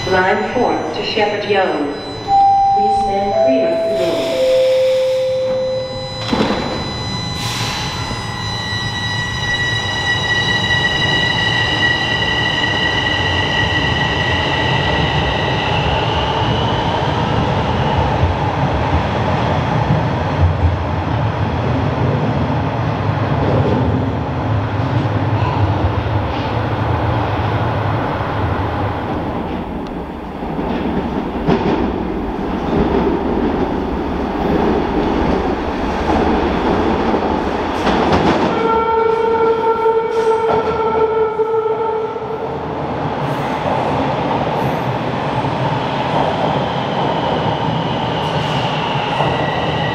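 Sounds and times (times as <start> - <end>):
train doors thudding shut: 4.1 - 8.4.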